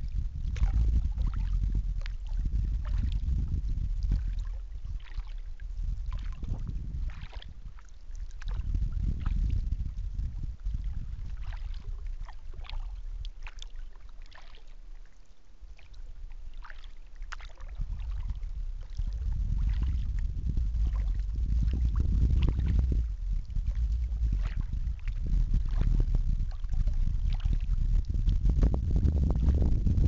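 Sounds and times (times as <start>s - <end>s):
wind rumbling on microphone: 0.0s - 14.7s, 15.6s - 30.0s
water splashes and drips: 4.0s - 9.4s, 11.2s - 15.1s, 15.8s - 20.1s, 24.4s - 28.4s.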